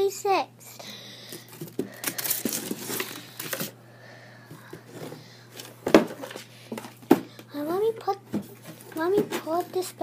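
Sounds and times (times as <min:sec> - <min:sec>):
packaging crinkling and rustling: 0:01.5 - 0:03.7.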